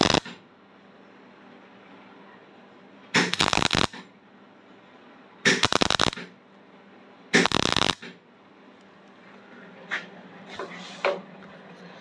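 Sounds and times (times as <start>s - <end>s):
welding arc crackling: 0.0s - 0.4s, 3.2s - 4.1s, 5.5s - 6.3s, 7.4s - 8.2s.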